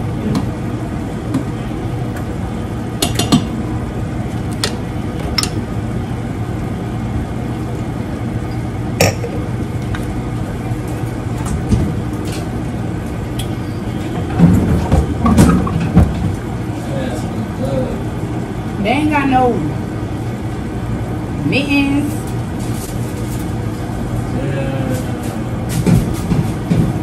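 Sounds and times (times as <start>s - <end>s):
steady low hum: 0.0s - 27.0s
glass clinking: 9.0s - 9.4s.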